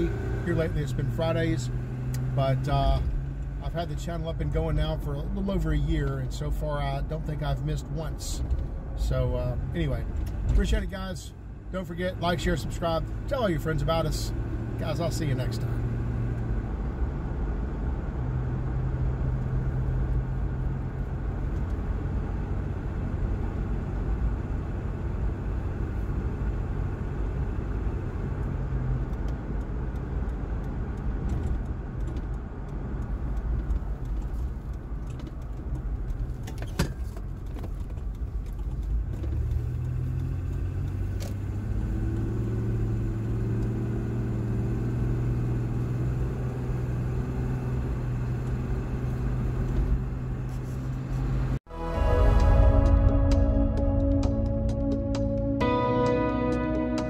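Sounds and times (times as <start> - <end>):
engine and tyre drone in cabin: 0.0 - 57.0.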